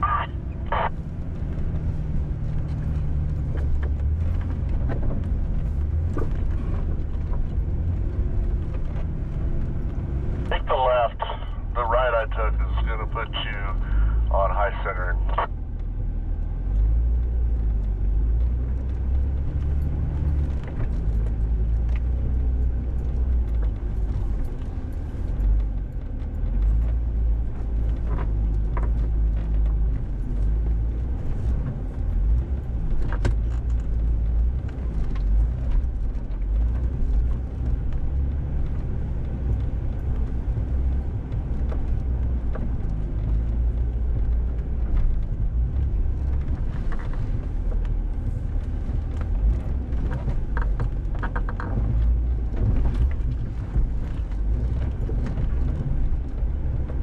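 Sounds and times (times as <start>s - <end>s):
engine and drivetrain rumble: 0.0s - 57.0s.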